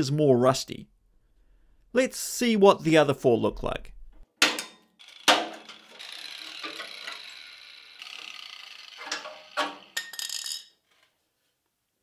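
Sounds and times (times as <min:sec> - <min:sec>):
metal tool scraping steel: 0:04.5 - 0:07.6, 0:08.2 - 0:11.1.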